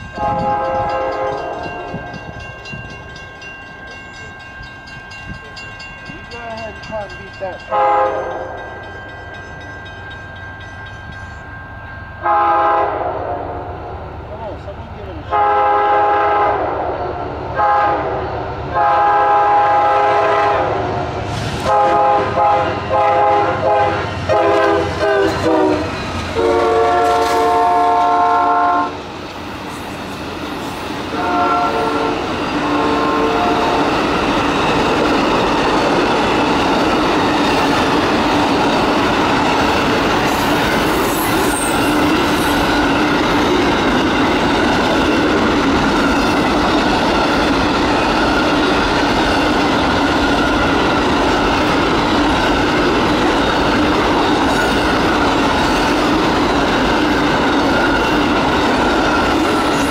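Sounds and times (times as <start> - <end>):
train rumble and wheel clatter: 0.0 - 59.9
locomotive air horn: 0.2 - 2.0, 7.7 - 8.6, 12.2 - 13.8, 15.3 - 29.0, 31.1 - 33.9.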